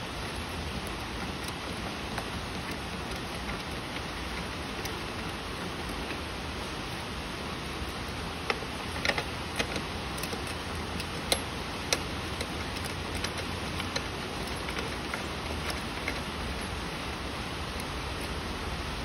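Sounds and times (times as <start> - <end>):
steady hiss: 0.0 - 19.0
metal bolt clicks and taps: 8.0 - 16.3.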